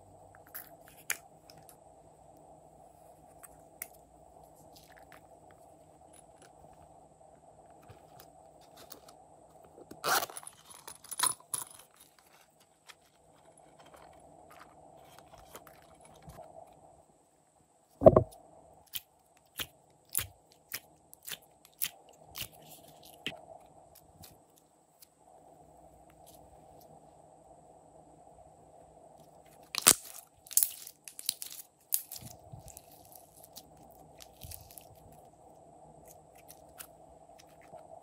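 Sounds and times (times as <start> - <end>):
faint steady hum: 0.0 - 38.0
slime scraping and crunching: 29.6 - 35.2.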